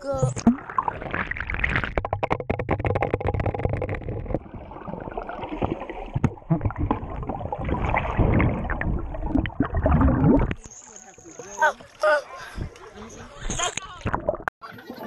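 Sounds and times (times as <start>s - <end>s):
water gurgling and rushing: 0.0s - 12.0s
muffled underwater pool water: 0.0s - 15.0s
air bubbling underwater: 0.3s - 10.6s.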